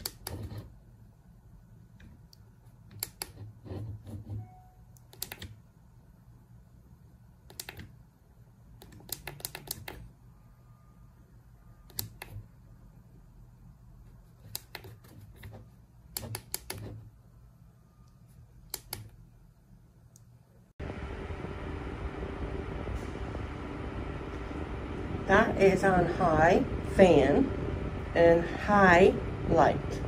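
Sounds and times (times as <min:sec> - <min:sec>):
faint low hum: 0:00.0 - 0:30.0
plastic push buttons clicking: 0:05.0 - 0:05.6, 0:07.5 - 0:08.0, 0:08.8 - 0:10.1.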